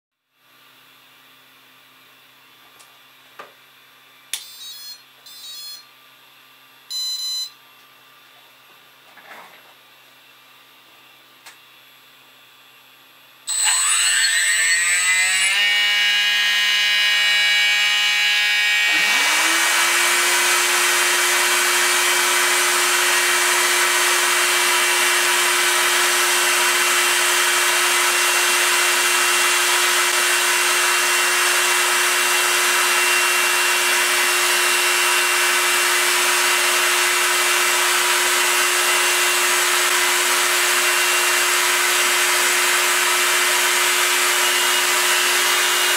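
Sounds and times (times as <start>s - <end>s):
mill spindle motor whine: 4.3s - 5.9s, 13.4s - 45.9s
dust extraction vacuum rushing: 18.9s - 45.9s.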